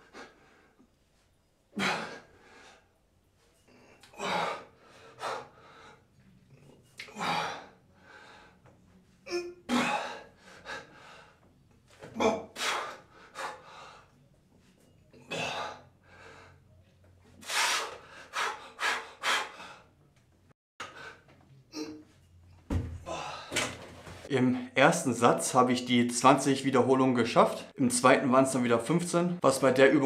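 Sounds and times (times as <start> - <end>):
man breathing hard: 3.6 - 6.2, 7.0 - 8.8, 9.7 - 11.5, 12.5 - 14.2, 15.3 - 16.8, 17.4 - 20.0.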